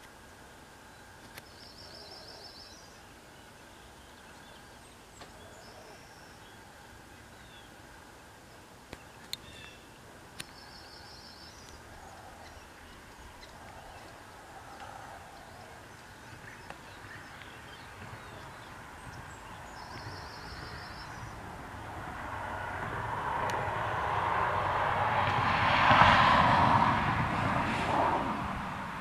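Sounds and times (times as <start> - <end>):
vehicle approaching: 10.6 - 29.0.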